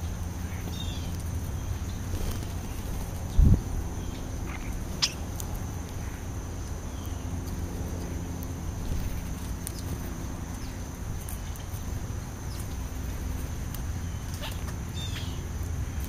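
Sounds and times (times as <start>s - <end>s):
birds chirping: 0.0s - 16.0s
steady low rumble: 0.0s - 16.0s
birds pecking clicks: 0.2s - 3.4s, 4.1s - 16.0s.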